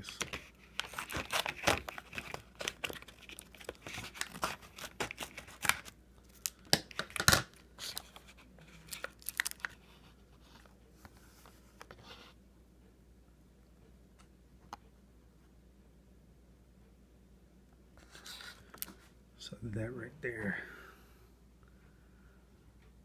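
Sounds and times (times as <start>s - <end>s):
foil pouch crinkling: 0.0s - 10.0s.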